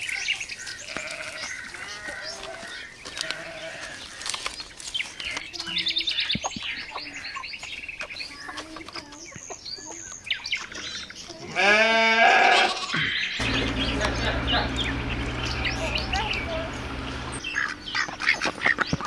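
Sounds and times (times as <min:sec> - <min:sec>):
small birds twittering: 0:00.0 - 0:11.7, 0:12.8 - 0:19.0
loud animal call: 0:11.6 - 0:18.3.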